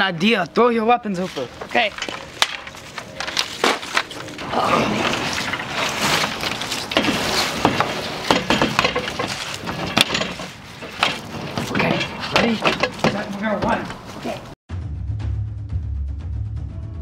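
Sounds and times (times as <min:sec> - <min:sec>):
folding table knocking and clattering: 0:04.9 - 0:14.0.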